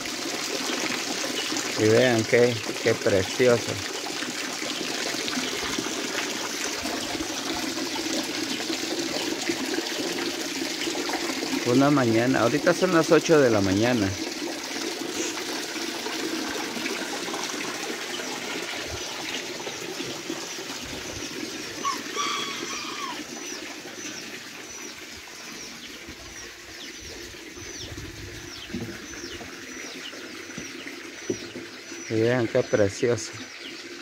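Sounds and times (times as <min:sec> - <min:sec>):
water pouring into tank: 0:00.0 - 0:34.0
birds calling: 0:00.5 - 0:10.0, 0:16.8 - 0:34.0.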